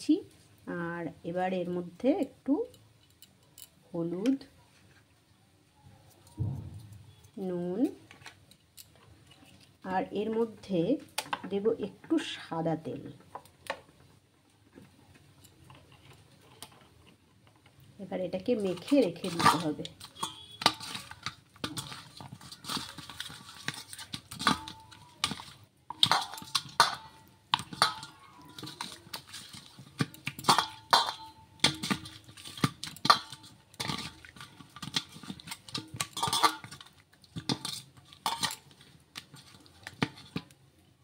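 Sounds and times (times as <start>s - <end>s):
fish scraping in metal bowl: 18.5s - 40.5s.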